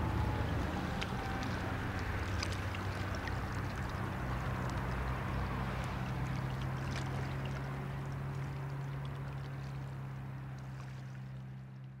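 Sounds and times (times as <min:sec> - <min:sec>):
ship diesel engine drone: 0:00.0 - 0:02.9
water wash: 0:00.0 - 0:11.9.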